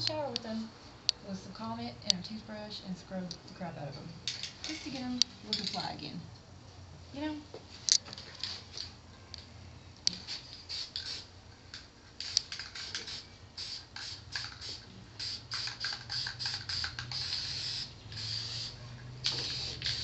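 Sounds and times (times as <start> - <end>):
spray paint can hissing: 10.1 - 20.0.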